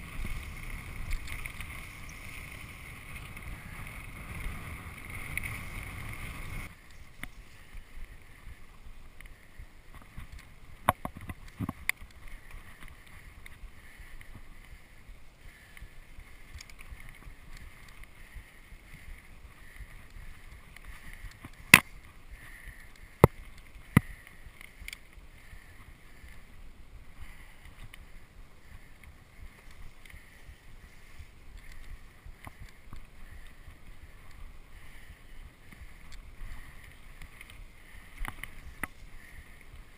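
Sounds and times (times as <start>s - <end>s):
bike clacking on roots and rocks: 0.0s - 7.9s
bike rattling: 0.0s - 26.6s, 27.2s - 39.9s
bike tyres rolling on dirt: 0.0s - 39.9s.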